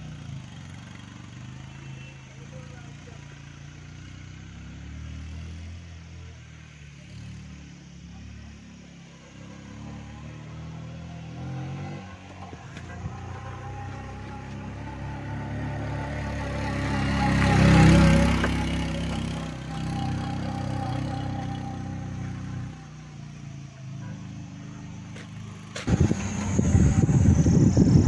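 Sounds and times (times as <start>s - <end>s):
wind and road noise: 3.4s - 28.0s
motorcycle engine running: 7.8s - 28.0s.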